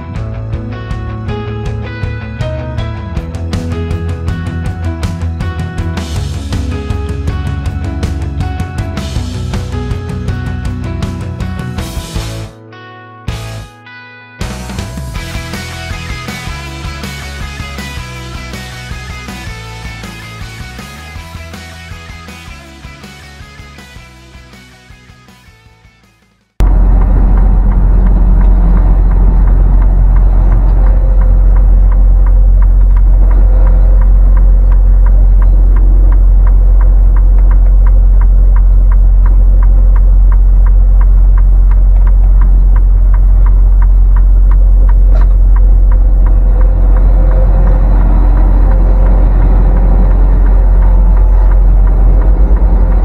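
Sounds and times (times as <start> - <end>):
truck engine rumbling: 2.0 - 12.5, 14.5 - 24.6, 26.6 - 53.0
road noise: 14.5 - 25.2, 26.6 - 53.0
faint ticking: 26.9 - 53.0.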